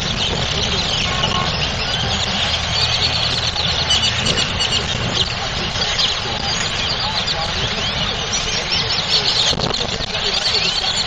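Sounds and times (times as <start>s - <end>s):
flock of birds chirping: 0.0s - 11.0s
low rumble of traffic: 0.0s - 11.0s.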